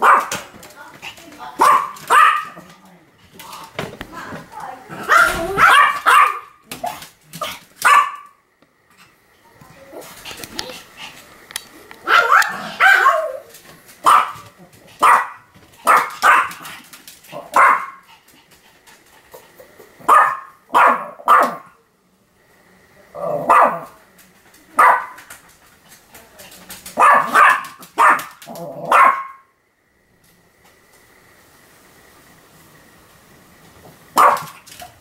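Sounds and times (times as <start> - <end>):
small dog barking: 0.0 - 0.4, 1.6 - 2.6, 5.0 - 7.0, 7.8 - 8.4, 12.0 - 16.6, 17.4 - 18.0, 20.0 - 21.8, 23.2 - 24.0, 24.8 - 25.2, 27.0 - 29.5, 34.1 - 34.7.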